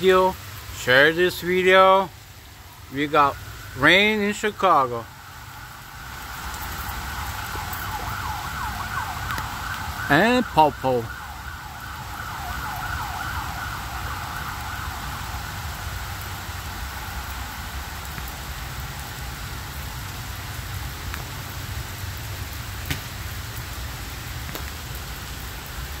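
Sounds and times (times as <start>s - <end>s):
steady rain: 0.0s - 26.0s
emergency vehicle siren wailing: 2.5s - 20.1s.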